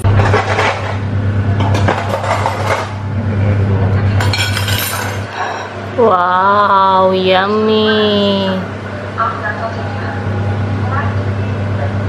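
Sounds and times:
steady low hum: 0:00.0 - 0:12.0
dishes and cutlery clinking: 0:04.2 - 0:05.3.

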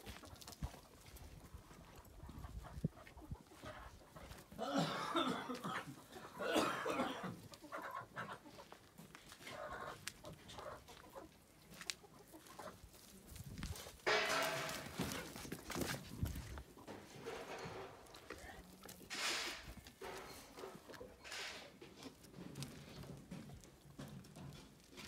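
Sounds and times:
animal clucking: 0:00.0 - 0:04.6, 0:07.2 - 0:14.6.

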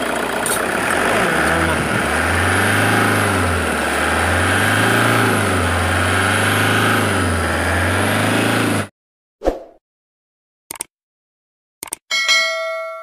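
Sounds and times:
diesel engine revving: 0:00.0 - 0:08.9.

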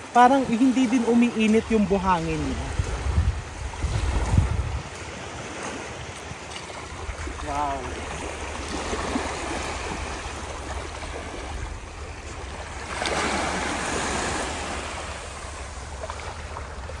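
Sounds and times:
small waves lapping on shore: 0:00.0 - 0:17.0.

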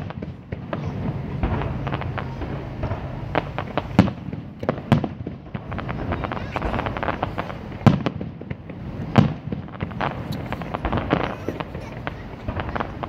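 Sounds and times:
fireworks crackling: 0:00.0 - 0:13.0
loud firework bangs: 0:00.0 - 0:13.0.

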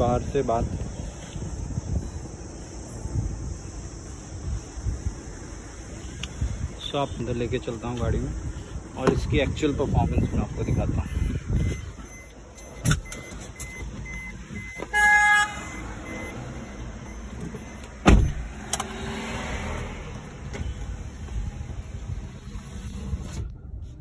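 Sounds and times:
car engine and road noise: 0:00.0 - 0:24.0
short car horn toot: 0:14.9 - 0:15.8
sharp thump: 0:18.0 - 0:18.4.

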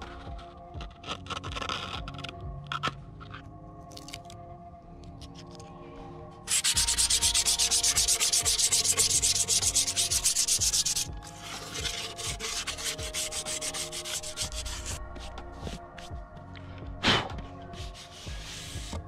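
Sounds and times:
hand rubbing wooden skateboard deck: 0:06.5 - 0:16.1, 0:17.1 - 0:19.0.

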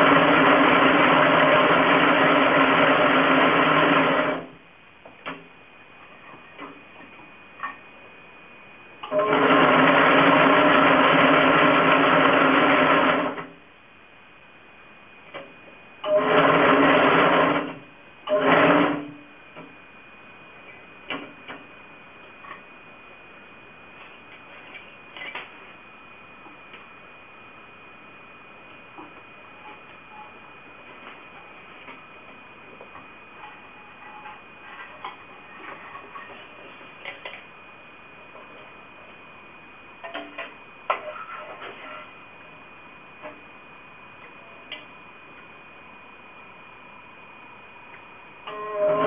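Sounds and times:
braiding machine whirring: 0:00.0 - 0:04.6, 0:09.0 - 0:13.6, 0:16.0 - 0:19.6, 0:48.4 - 0:49.0.

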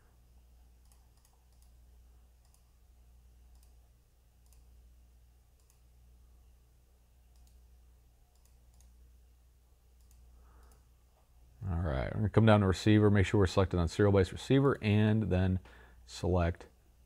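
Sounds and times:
low steady hum: 0:00.0 - 0:17.0
computer mouse clicks: 0:00.8 - 0:01.8, 0:02.4 - 0:02.7, 0:03.5 - 0:03.8, 0:04.4 - 0:04.7, 0:05.6 - 0:05.8, 0:07.3 - 0:07.6, 0:08.3 - 0:09.0, 0:10.0 - 0:10.8.

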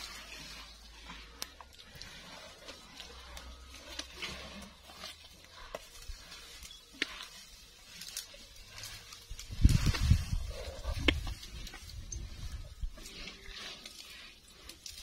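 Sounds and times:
leaves rustling: 0:00.0 - 0:15.0.

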